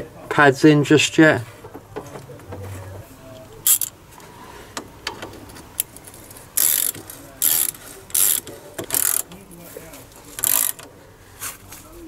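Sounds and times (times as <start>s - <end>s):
ratchet wrench clicking: 3.6s - 4.0s, 5.8s - 9.4s, 10.3s - 10.9s.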